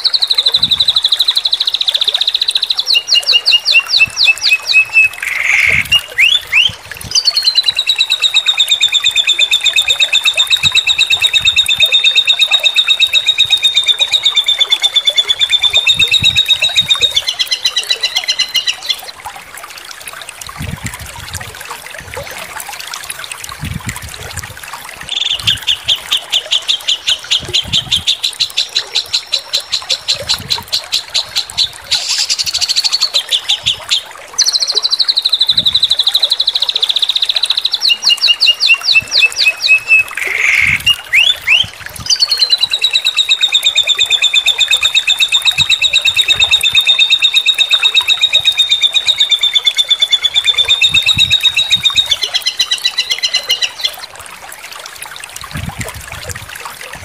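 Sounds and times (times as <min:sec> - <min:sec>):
bird song phrases: 0:00.0 - 0:19.2, 0:25.1 - 0:30.5, 0:31.2 - 0:54.0
fast rattling bird trill: 0:02.3 - 0:19.0.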